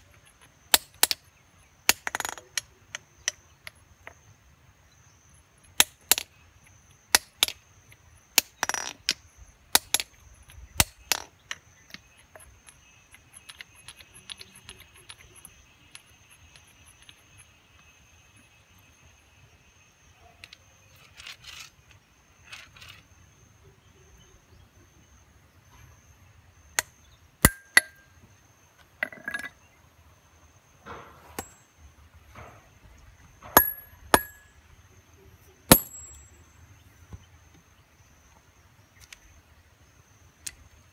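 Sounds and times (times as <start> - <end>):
hammer striking steel chisel: 27.4 - 28.0, 33.5 - 34.5, 35.7 - 36.2.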